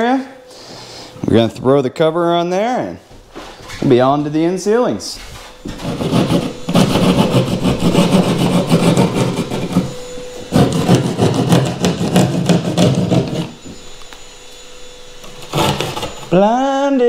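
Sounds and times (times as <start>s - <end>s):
hand saw rasping through drywall: 5.6s - 13.6s, 15.2s - 16.4s.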